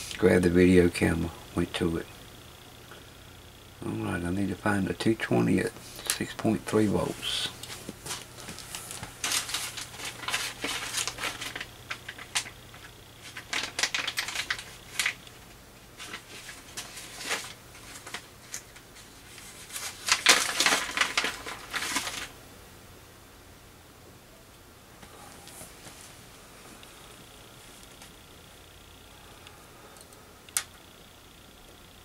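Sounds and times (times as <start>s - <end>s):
electronic parts clicking and rattling: 8.6s - 15.2s.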